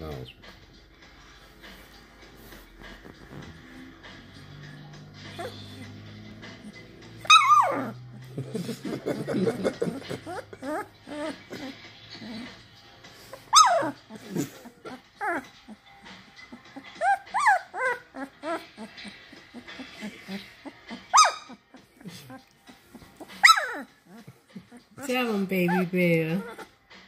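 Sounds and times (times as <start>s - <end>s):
puppy whimpering: 5.1s - 8.3s, 9.5s - 26.8s.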